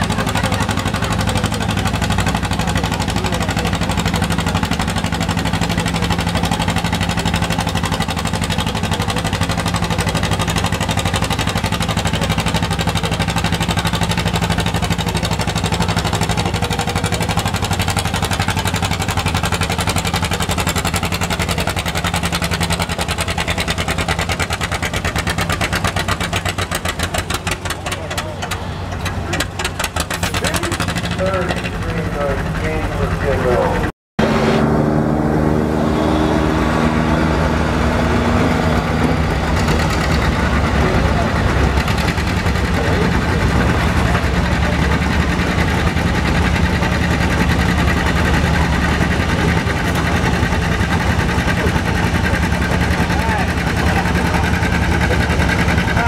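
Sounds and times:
tractor engine running under load: 0:00.0 - 0:56.0.

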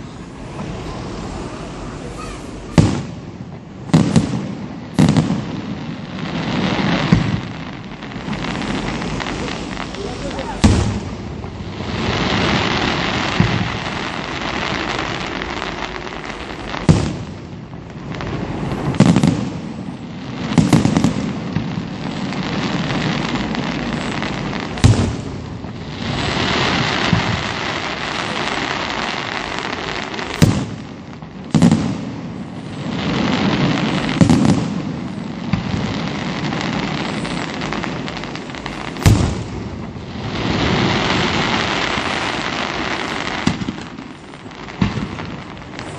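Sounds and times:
dense crackling hiss of fireworks: 0:00.0 - 0:45.9
firework shells bursting: 0:38.1 - 0:40.0.

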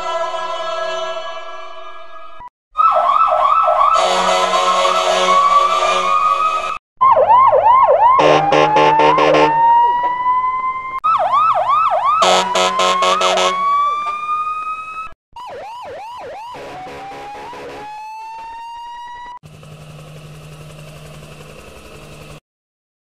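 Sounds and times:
police siren yelping and wailing: 0:02.8 - 0:19.4
short horn blast: 0:08.2 - 0:09.6, 0:12.2 - 0:13.6.

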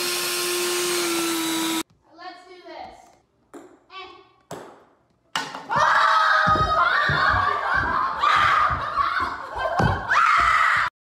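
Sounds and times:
running footsteps on hard floor: 0:05.7 - 0:10.9.

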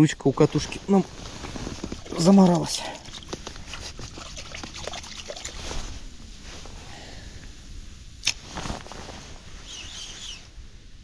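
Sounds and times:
water splashing and trickling: 0:00.1 - 0:06.2.

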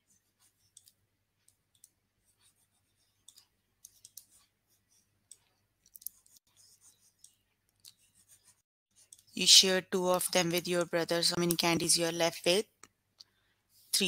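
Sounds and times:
pen clicks and taps: 0:05.3 - 0:06.4.

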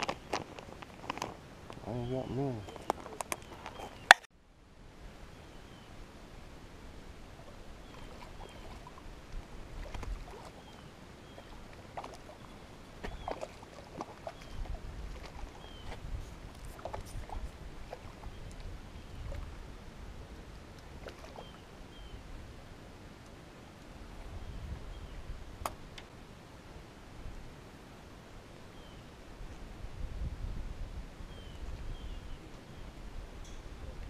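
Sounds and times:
fishing rod clicks and knocks: 0:02.7 - 0:04.3
wind rumbling on microphone: 0:04.8 - 0:22.7, 0:23.9 - 0:26.0, 0:28.8 - 0:34.0.

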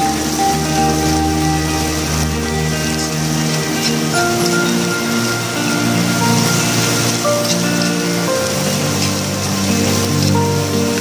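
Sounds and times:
background music of slow held notes: 0:00.0 - 0:11.0.

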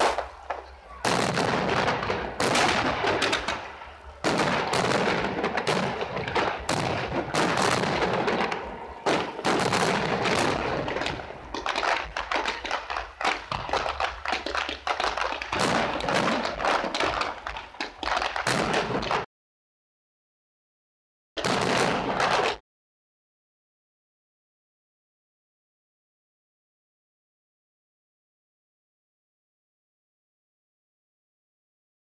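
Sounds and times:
fireworks bangs: 0:00.0 - 0:19.3, 0:21.4 - 0:22.6
fireworks crackling: 0:00.0 - 0:19.3, 0:21.4 - 0:22.6.

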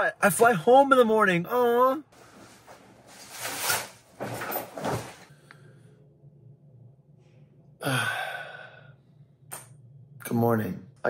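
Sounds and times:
faint low hum: 0:00.0 - 0:11.0
garment bag and clothes rustling: 0:02.2 - 0:05.3.

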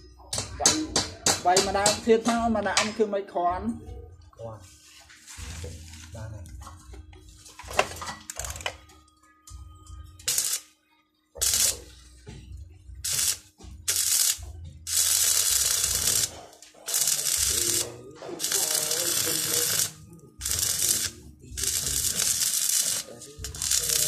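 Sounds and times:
welding arc buzzing: 0:10.2 - 0:10.6, 0:11.4 - 0:11.9, 0:13.0 - 0:24.0.

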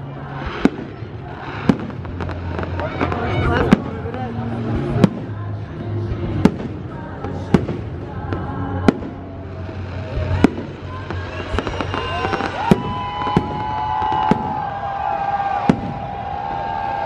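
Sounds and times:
firework crackle: 0:00.0 - 0:17.0
firework whistling: 0:08.7 - 0:17.0.

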